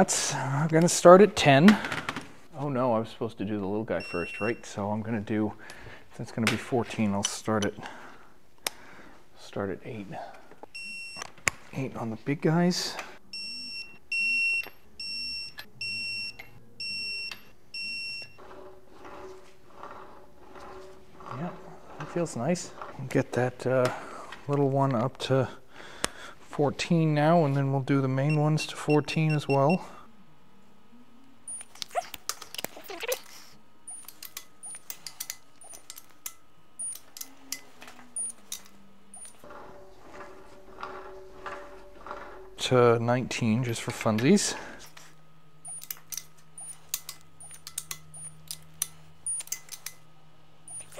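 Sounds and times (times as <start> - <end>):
torque wrench beeping: 4.0 - 4.7, 13.4 - 18.5, 31.5 - 31.8, 33.9 - 39.5, 45.6 - 50.0, 50.7 - 50.9
torque wrench ratchet clicking: 45.7 - 50.0.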